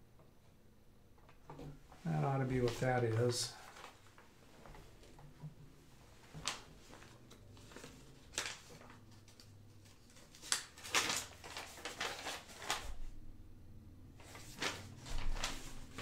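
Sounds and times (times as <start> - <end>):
paper packaging rustling: 2.1 - 5.2, 6.1 - 13.2, 14.2 - 16.0.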